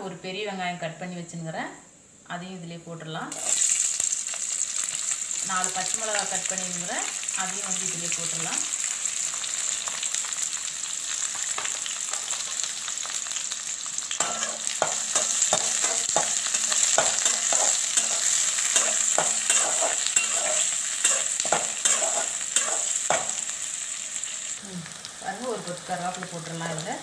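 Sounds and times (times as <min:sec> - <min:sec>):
onions sizzling in hot oil: 0:03.3 - 0:27.0
metal spatula scraping pan: 0:14.2 - 0:23.5.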